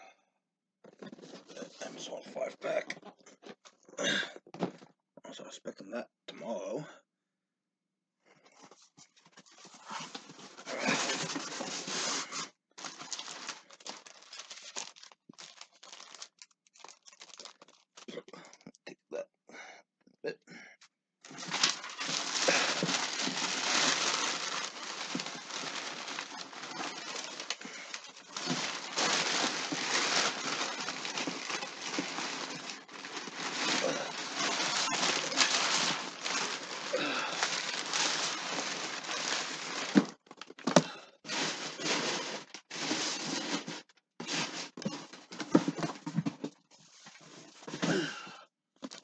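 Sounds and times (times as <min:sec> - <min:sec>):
plastic and paper crinkling: 0:08.7 - 0:18.7, 0:21.3 - 0:48.0.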